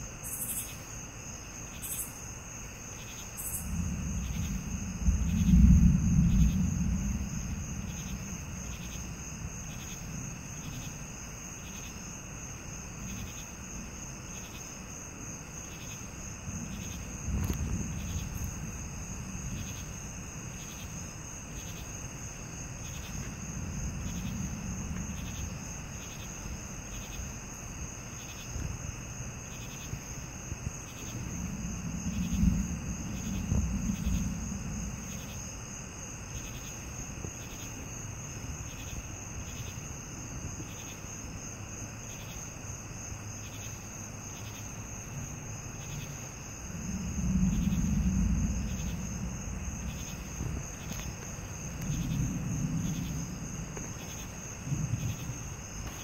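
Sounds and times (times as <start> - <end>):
night insects chirping: 0.0 - 56.0
low thunder rumbles: 3.0 - 42.0, 43.0 - 56.0.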